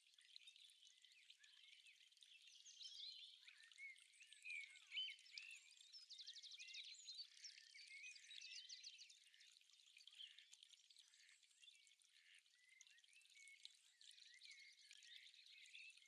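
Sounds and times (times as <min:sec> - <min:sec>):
songbirds trilling and chirping: 0:00.0 - 0:16.0.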